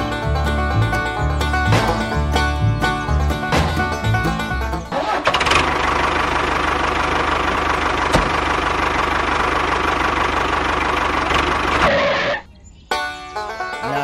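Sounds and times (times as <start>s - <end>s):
background music: 0.0s - 4.9s
tractor engine running: 0.0s - 14.0s.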